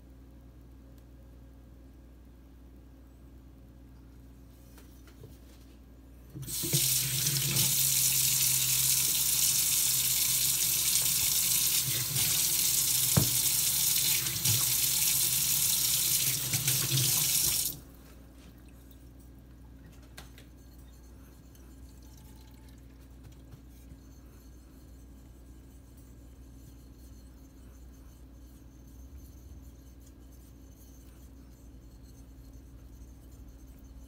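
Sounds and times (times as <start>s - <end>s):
tap water running into sink: 6.4s - 17.8s.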